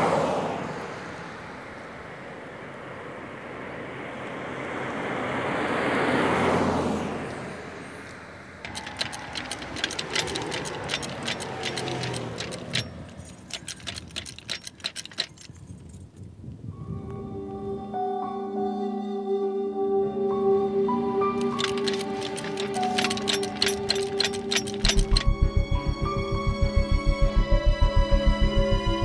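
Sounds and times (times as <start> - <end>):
car driving past: 0.0 - 8.6
sharp metallic clicks and clinks: 8.6 - 16.2, 21.4 - 29.0.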